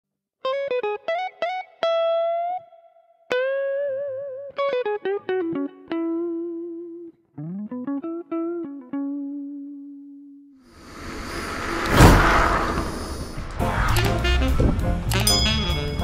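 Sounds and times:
guitar picking a melody: 0.4 - 10.5.

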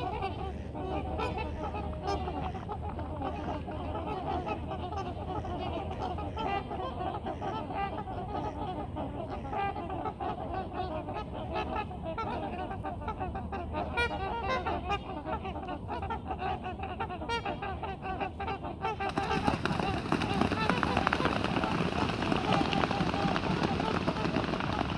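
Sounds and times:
swans honking: 0.0 - 24.9
water splashing and wing noise: 18.8 - 24.9.

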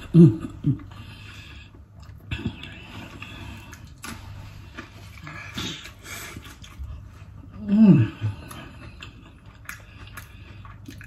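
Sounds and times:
chewing and crunching food: 0.0 - 11.0
person humming: 7.6 - 8.6.

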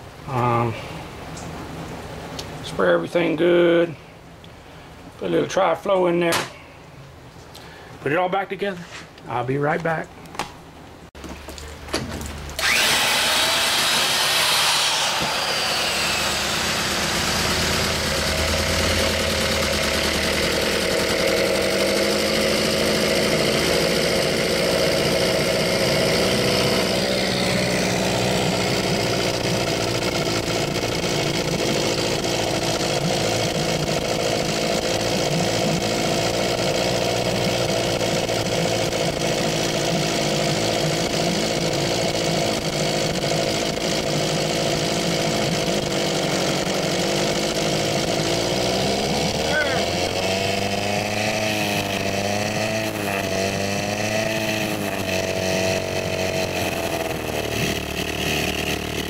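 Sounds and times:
outboard motor pull-started: 12.2 - 59.0.

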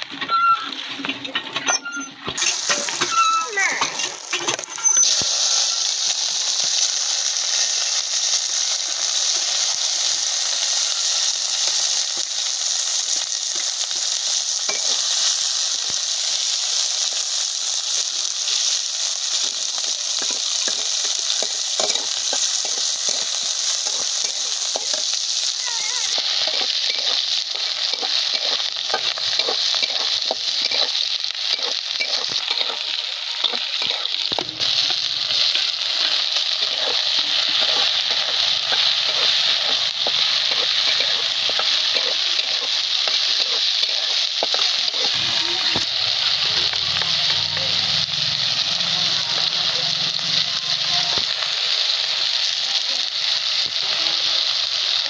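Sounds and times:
onions sizzling in oil: 0.0 - 55.0
metal spatula scraping pan: 0.1 - 5.8, 20.2 - 25.2, 26.1 - 45.8.

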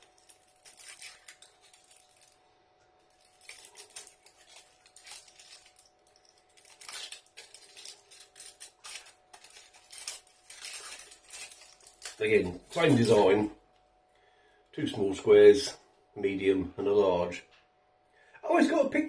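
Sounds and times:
foil wrapper crinkling: 0.0 - 13.5.

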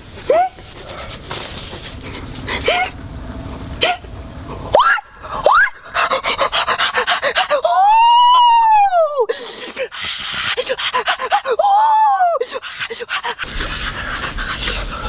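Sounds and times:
man panting: 2.0 - 3.0, 5.2 - 7.8, 9.2 - 15.0
man yelping: 11.1 - 12.6
man screaming: 11.3 - 12.4.

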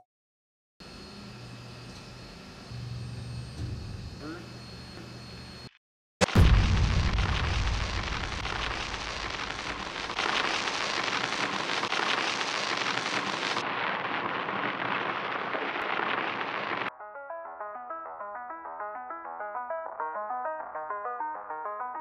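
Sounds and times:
laser melting metal crackling hiss: 7.0 - 16.9
music: 16.9 - 22.0.

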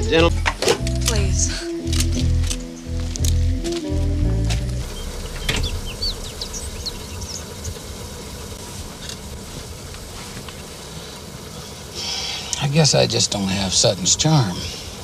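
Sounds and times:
birds chirping: 0.0 - 15.0
car engine running: 4.3 - 7.4
thump: 5.4 - 5.8.

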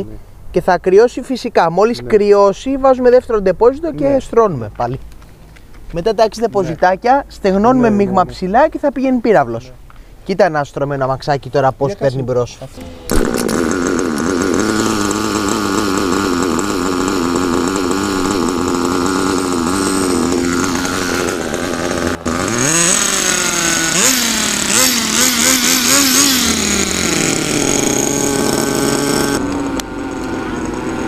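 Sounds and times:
model car engine idling and revving: 11.7 - 31.0.

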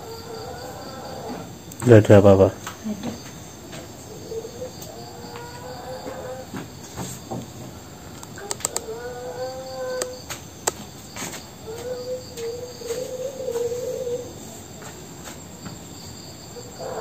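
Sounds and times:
sharp clicks: 8.2 - 8.9.

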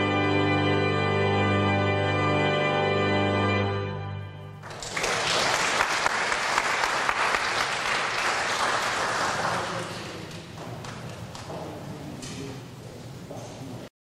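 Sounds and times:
organ chord: 0.0 - 4.8
applause: 4.6 - 11.5.

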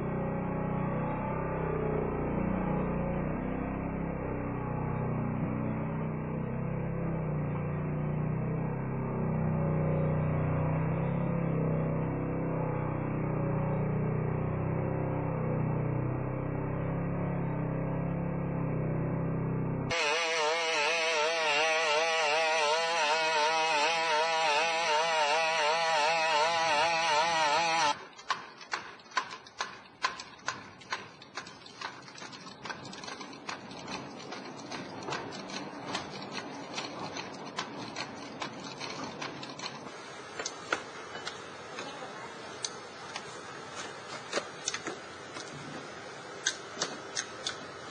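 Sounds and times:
robot two-stroke engine buzzing: 19.9 - 28.0.

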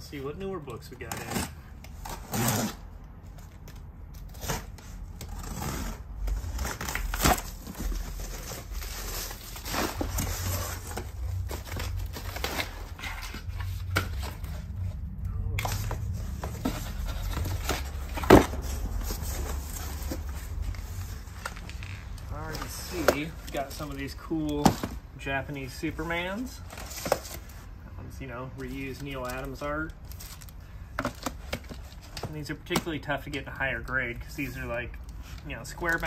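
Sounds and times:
cardboard scraping and rustling: 1.0 - 15.0, 15.6 - 25.0, 26.4 - 27.6
box cutter slitting tape: 1.1 - 2.8
bubble wrap crinkling: 3.6 - 14.8.

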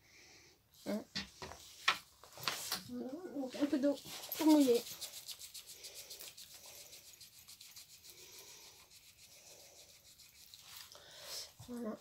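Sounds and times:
brush rubbing on paint pan: 3.4 - 12.0.

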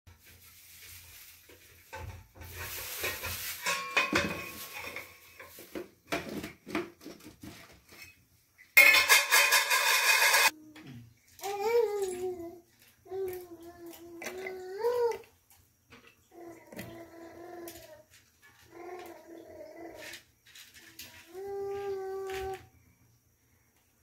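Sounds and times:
steel utensils clattering: 2.5 - 5.7, 8.8 - 10.5.

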